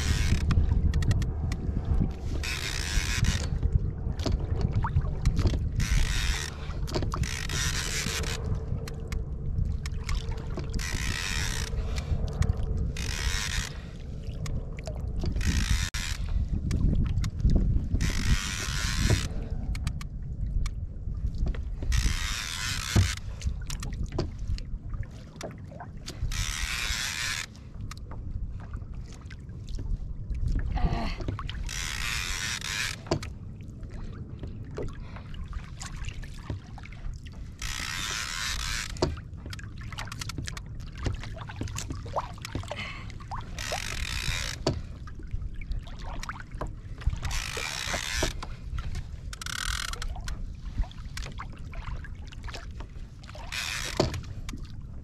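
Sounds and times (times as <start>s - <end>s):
fishing reel clicking: 0.0s - 1.6s, 2.3s - 3.7s, 5.2s - 9.2s, 9.8s - 14.5s, 15.3s - 20.1s, 21.9s - 24.0s, 26.0s - 28.0s, 31.6s - 33.3s, 37.6s - 39.2s, 43.5s - 44.9s, 47.2s - 50.4s, 53.4s - 54.3s
water washing against kayak hull: 0.0s - 55.0s
wind rumble on microphone: 0.0s - 55.0s.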